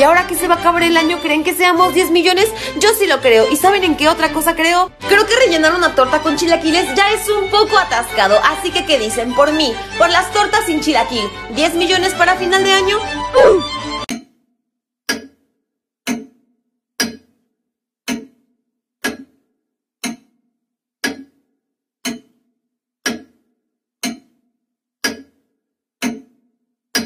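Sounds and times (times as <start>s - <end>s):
clock ticking: 16.1s - 16.4s, 18.0s - 18.4s, 19.0s - 19.4s, 20.0s - 20.3s, 21.0s - 21.4s, 22.0s - 22.4s, 23.0s - 23.4s, 24.0s - 24.4s, 25.0s - 25.4s, 26.0s - 26.4s.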